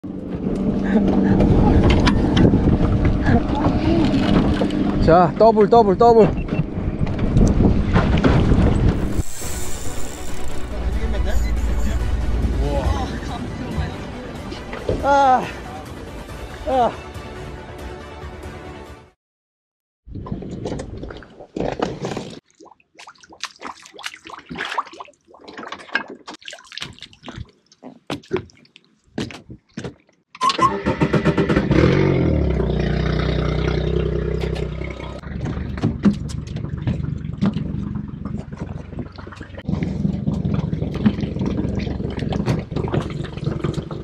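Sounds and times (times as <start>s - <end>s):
boat engine starting and idling: 30.4s - 44.0s.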